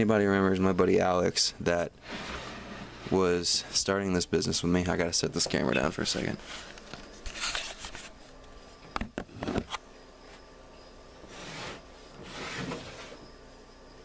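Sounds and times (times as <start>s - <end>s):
plastic tub scraping on wood: 2.0s - 3.4s, 11.2s - 13.2s.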